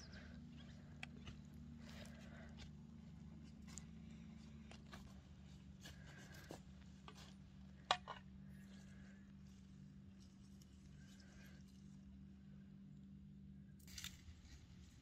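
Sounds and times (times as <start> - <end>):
low steady hum: 0.0 - 15.0
rustling and snapping of plants: 13.8 - 15.0.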